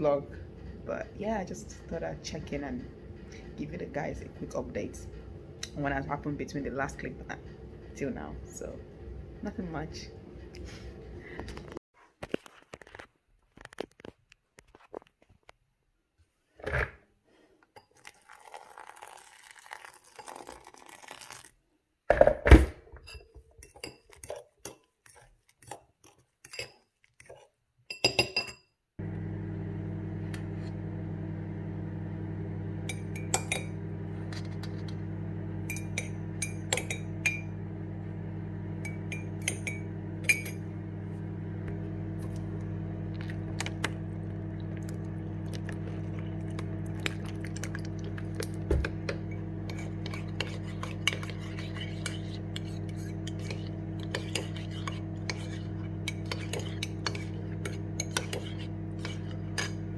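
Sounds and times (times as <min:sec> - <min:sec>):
spoon clinking on ceramic: 0:26.4 - 0:26.8, 0:27.9 - 0:28.7, 0:32.9 - 0:33.7, 0:35.6 - 0:37.5, 0:38.8 - 0:40.6, 0:49.1 - 0:59.8
low hum: 0:29.0 - 0:59.9.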